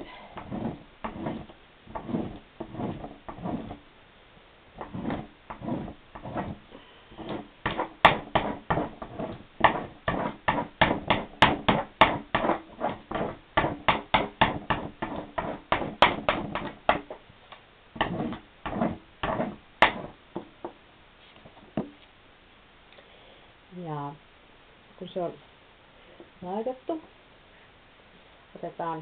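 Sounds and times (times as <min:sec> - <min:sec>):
candle rubbing on paper: 0:00.4 - 0:03.8, 0:04.8 - 0:07.5.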